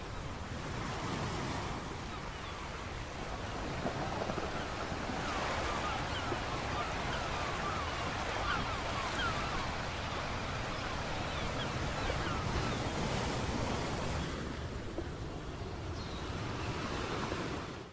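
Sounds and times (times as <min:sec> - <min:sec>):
sea washing over rocks: 0:01.0 - 0:14.9.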